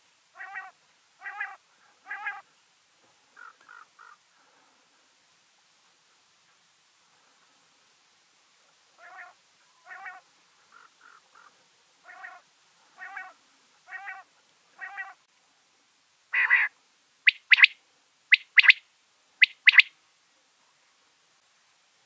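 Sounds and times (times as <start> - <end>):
quail calling: 0.4 - 2.4, 3.4 - 4.2, 9.0 - 12.4, 13.0 - 15.2, 16.3 - 18.8, 19.4 - 19.9.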